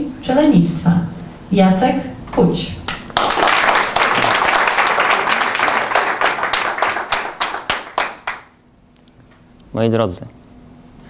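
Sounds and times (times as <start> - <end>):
audience applauding: 3.1 - 8.6.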